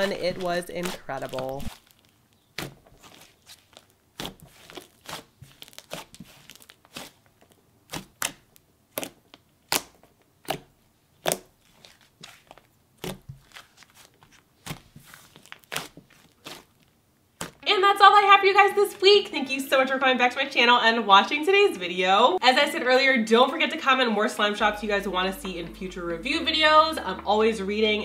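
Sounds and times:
sharp pops and crackles: 0:00.0 - 0:11.8
slime squished by hand: 0:00.0 - 0:16.8.

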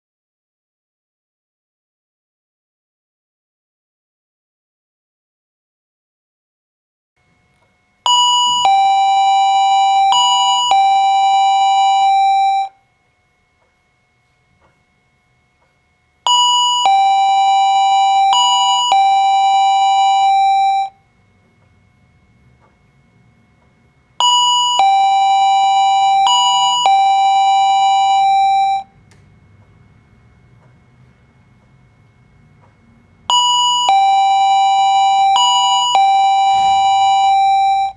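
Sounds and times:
doorbell ding-dong chime: 0:08.1 - 0:12.8, 0:16.3 - 0:21.0, 0:24.2 - 0:28.9, 0:33.3 - 0:37.9.

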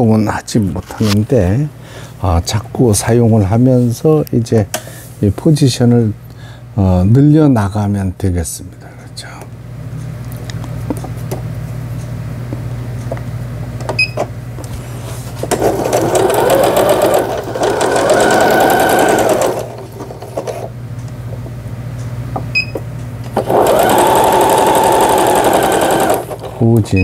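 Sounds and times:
sewing machine stitching: 0:15.5 - 0:20.6, 0:23.3 - 0:26.7.

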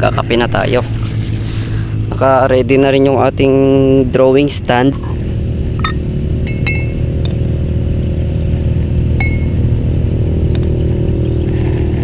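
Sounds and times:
steady low rumble: 0:00.0 - 0:12.0
metal spoon clinking on glass: 0:05.8 - 0:07.0.

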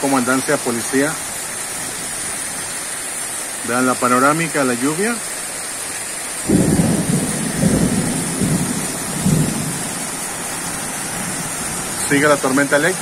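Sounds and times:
steady rain: 0:00.0 - 0:13.0
rumble of thunder: 0:06.4 - 0:12.0.

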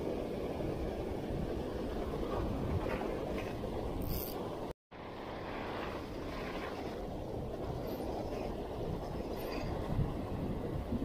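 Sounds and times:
wind buffeting the microphone: 0:00.0 - 0:04.0, 0:04.6 - 0:11.0
breaking surf: 0:05.0 - 0:09.9.

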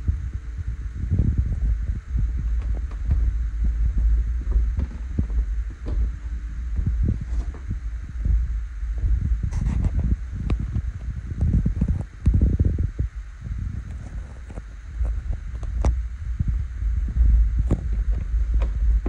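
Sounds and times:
footsteps: 0:01.4 - 0:10.8.

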